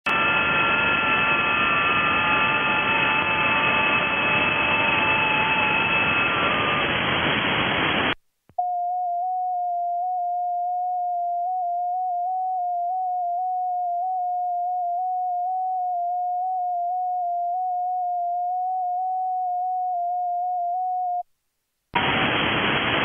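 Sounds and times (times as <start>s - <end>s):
radio transmit tone: 0.1s - 21.2s
radio band hiss: 6.8s - 8.2s, 22.0s - 23.0s
faint data tones: 8.6s - 21.3s.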